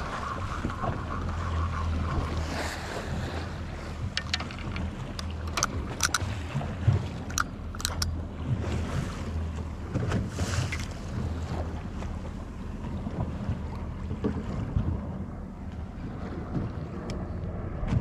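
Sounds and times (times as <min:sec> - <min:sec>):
outboard engines idling: 0:00.0 - 0:17.7
water against hull: 0:00.0 - 0:18.0
wind on microphone: 0:00.0 - 0:18.0
sharp clicks: 0:04.2 - 0:06.3, 0:07.2 - 0:08.1.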